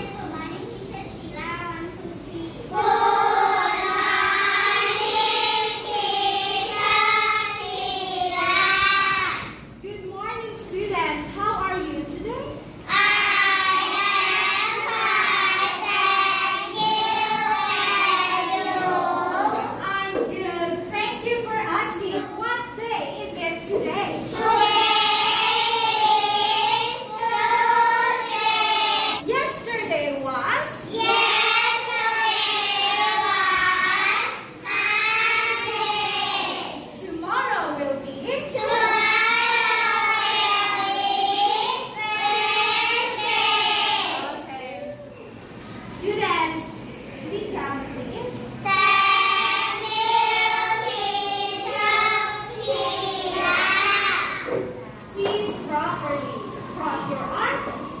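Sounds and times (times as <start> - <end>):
children singing in unison: 2.7 - 9.4, 12.9 - 19.6, 24.3 - 29.2, 30.9 - 36.8, 38.6 - 44.4, 48.8 - 54.5.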